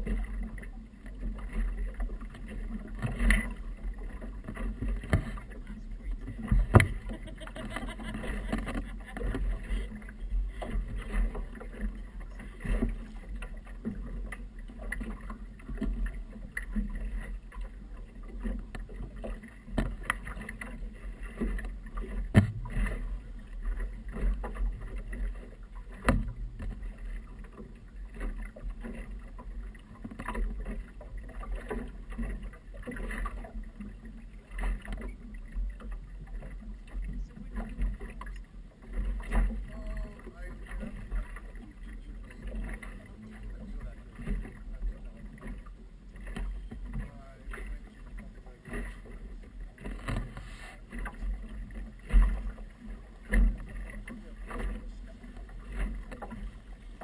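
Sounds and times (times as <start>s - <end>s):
water slapping against boat hull: 0.0s - 57.0s
knocks on boat: 4.4s - 9.6s, 18.7s - 20.4s, 21.4s - 23.2s, 25.9s - 26.9s, 49.8s - 52.6s.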